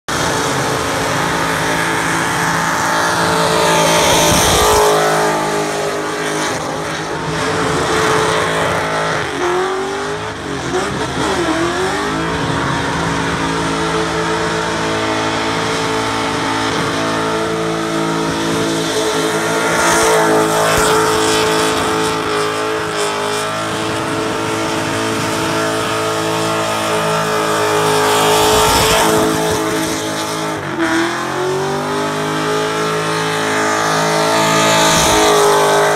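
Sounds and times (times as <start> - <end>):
car engine at high revs: 0.0 - 35.9.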